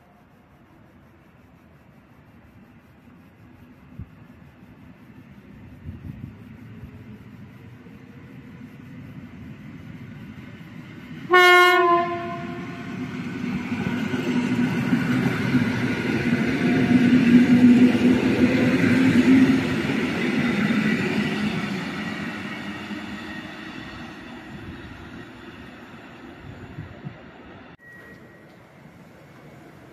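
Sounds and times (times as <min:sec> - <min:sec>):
train running through station: 0:00.0 - 0:29.9
train horn blast: 0:11.3 - 0:13.0.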